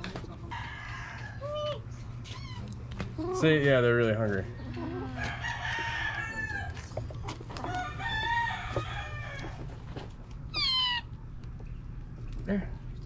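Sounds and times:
rooster crowing: 0.5 - 1.7, 5.0 - 9.8.

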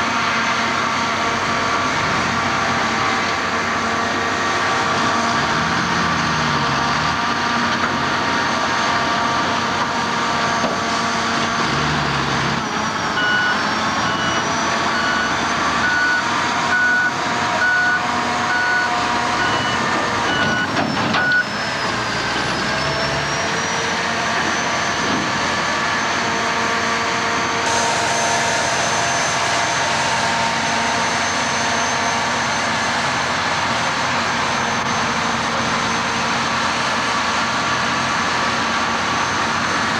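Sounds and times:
diesel engines running: 0.0 - 39.9
reversing alarm beeping: 12.6 - 25.1.

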